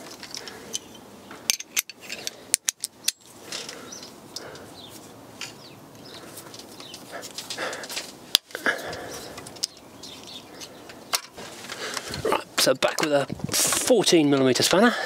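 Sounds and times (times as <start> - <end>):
metal tools clicking and clinking: 0.0 - 4.5.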